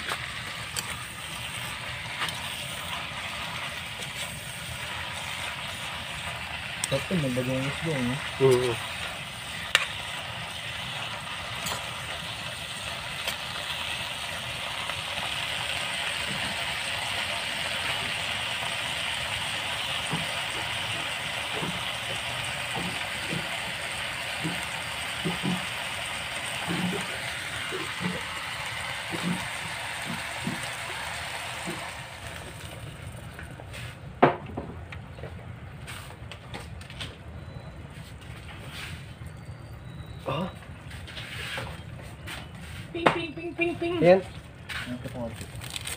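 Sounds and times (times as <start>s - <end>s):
vegetables sizzling in a wok: 0.0s - 34.2s.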